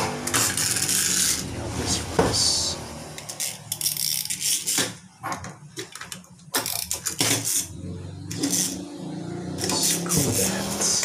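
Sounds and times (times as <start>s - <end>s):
toy mechanism ratcheting clicks: 0.3s - 1.4s, 3.2s - 4.9s, 6.6s - 8.8s, 9.6s - 11.0s.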